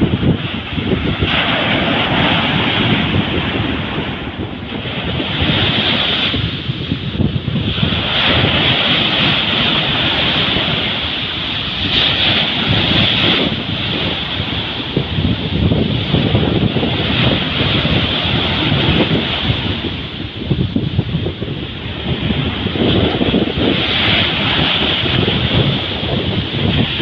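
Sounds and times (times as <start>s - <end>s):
waves washing up a beach: 0.0s - 27.0s
wind rumbling on microphone: 0.0s - 27.0s.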